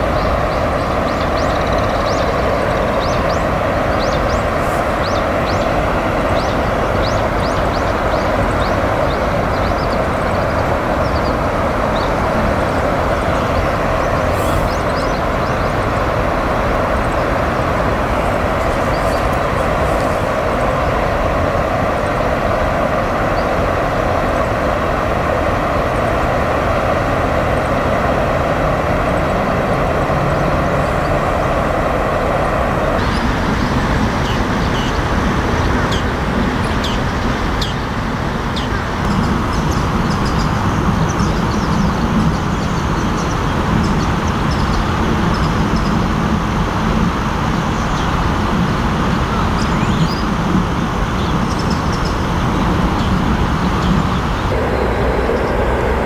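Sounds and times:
river water rushing: 0:00.0 - 0:39.4, 0:51.9 - 0:56.0.

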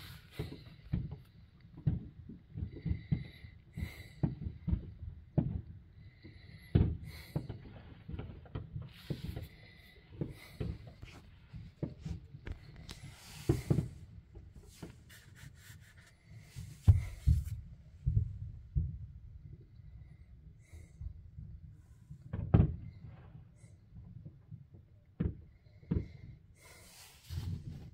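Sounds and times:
distant fireworks booms and pops: 0:00.4 - 0:09.5, 0:22.2 - 0:26.3.

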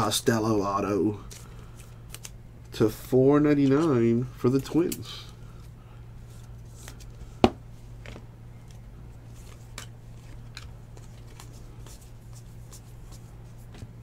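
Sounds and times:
steady low hum: 0:00.0 - 0:14.0
cards flipped by hand: 0:01.3 - 0:02.4, 0:08.0 - 0:13.9.

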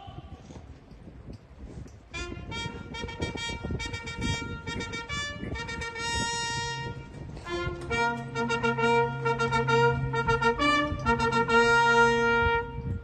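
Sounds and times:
military trumpet call: 0:02.1 - 0:13.0
low held note: 0:05.6 - 0:13.0.

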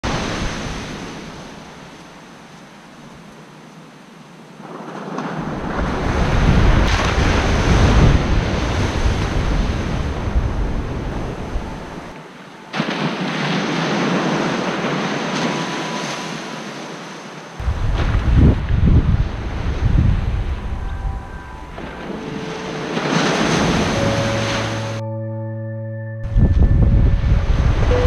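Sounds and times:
ocean surf breaking on beach: 0:00.0 - 0:25.0
wind rumbling on microphone: 0:04.5 - 0:12.2, 0:17.6 - 0:25.0, 0:26.2 - 0:28.0.

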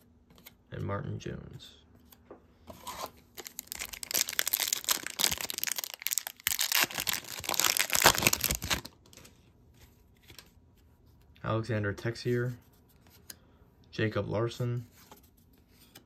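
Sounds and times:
card pack wrapper tearing and crinkling: 0:03.0 - 0:09.2.

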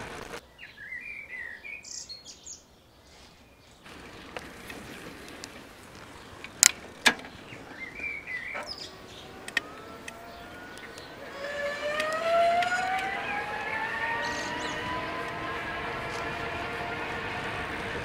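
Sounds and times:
bird chirp: 0:00.4 - 0:18.0
electric bike motor whining: 0:03.9 - 0:18.0
sharp clicks: 0:08.5 - 0:13.2.

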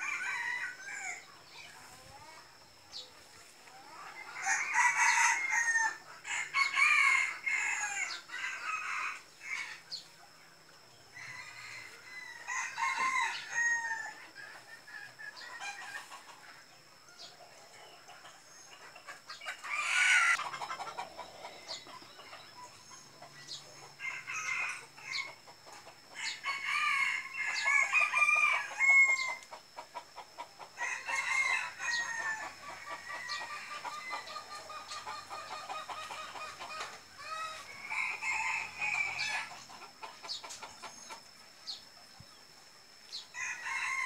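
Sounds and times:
rooster crowing: 0:00.0 - 0:01.2, 0:04.2 - 0:09.8, 0:11.1 - 0:14.2, 0:19.6 - 0:20.4, 0:24.0 - 0:25.3, 0:26.2 - 0:29.4, 0:30.8 - 0:34.6, 0:36.8 - 0:39.5, 0:43.3 - 0:44.0
chickens clucking: 0:01.0 - 0:44.0.

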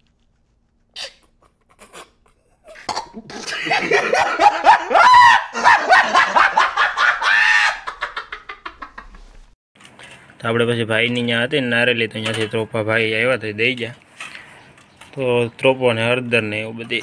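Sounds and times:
man laughing loudly: 0:03.2 - 0:09.3.

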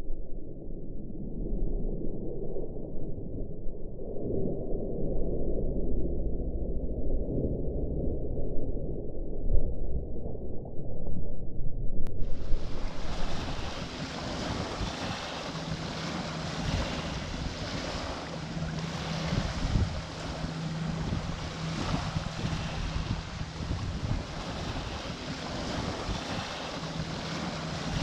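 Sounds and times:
steady low hum: 0:05.0 - 0:28.0
wind on microphone: 0:08.0 - 0:28.0
choppy water: 0:12.2 - 0:28.0
waves washing onto pebble beach: 0:12.3 - 0:28.0.

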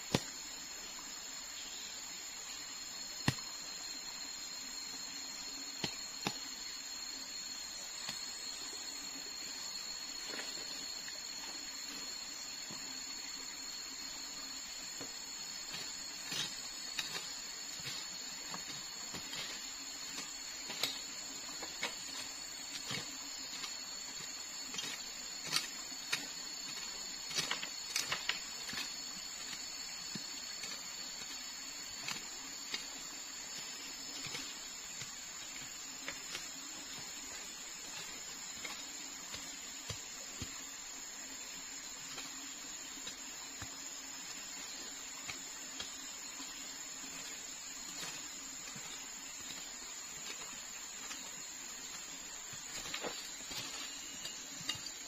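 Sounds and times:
forest insects droning: 0:00.0 - 0:55.0
hand tool chopping into soil: 0:15.7 - 0:31.4, 0:33.6 - 0:40.6, 0:47.1 - 0:55.0.

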